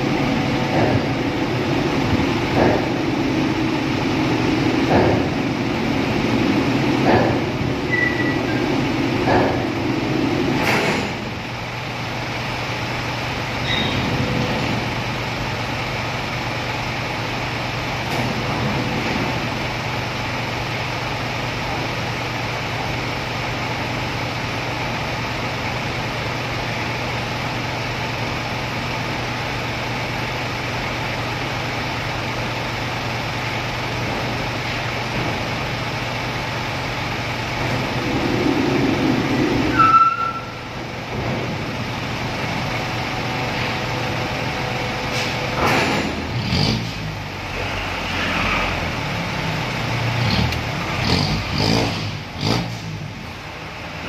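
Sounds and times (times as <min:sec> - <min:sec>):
louder engine rumble: 0:00.0 - 0:54.0
truck engines idling: 0:00.0 - 0:54.0
sharp knocks: 0:00.7 - 0:01.2, 0:02.5 - 0:03.0, 0:04.8 - 0:05.4, 0:07.0 - 0:07.5, 0:09.2 - 0:09.8.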